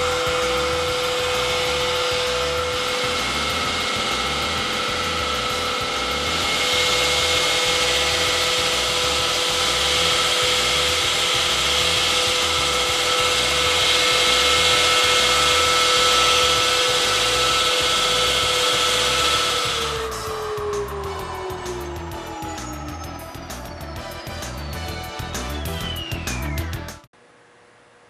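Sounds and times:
blade cutting concrete: 0:00.0 - 0:25.0
wall saw motor whining: 0:00.0 - 0:27.1.

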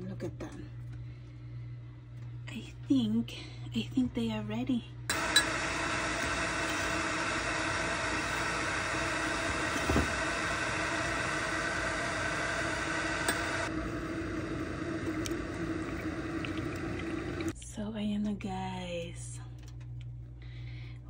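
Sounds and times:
electric kettle heating water: 0:05.1 - 0:17.6.

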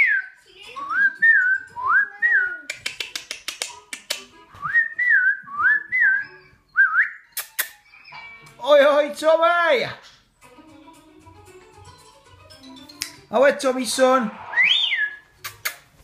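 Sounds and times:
cockatiel whistling a tune: 0:00.0 - 0:02.7, 0:04.6 - 0:08.1, 0:14.4 - 0:15.3.

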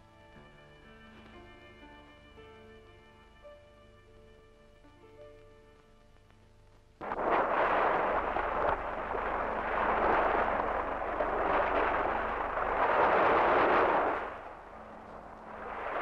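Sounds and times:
surf breaking on rocks: 0:07.0 - 0:16.0.

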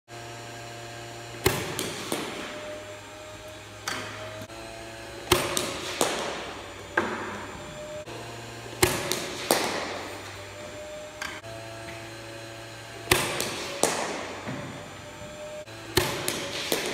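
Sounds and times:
low hum: 0:00.1 - 0:16.9
ball knocking off floor and netting: 0:01.4 - 0:02.8, 0:05.2 - 0:07.6, 0:08.7 - 0:10.4, 0:13.0 - 0:14.9, 0:15.9 - 0:16.9
cricket ball cracking off bat: 0:05.3 - 0:07.3, 0:08.8 - 0:10.2, 0:13.1 - 0:14.5, 0:15.9 - 0:16.9.

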